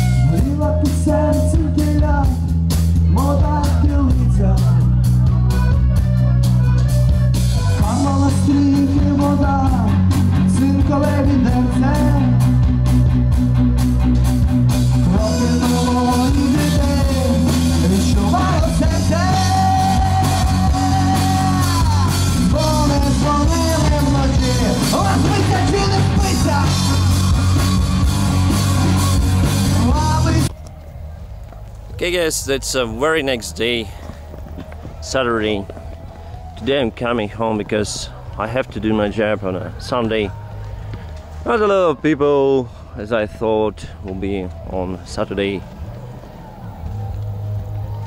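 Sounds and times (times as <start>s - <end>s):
heavy bass line: 0.0s - 31.2s
rock song with singer: 0.0s - 31.3s.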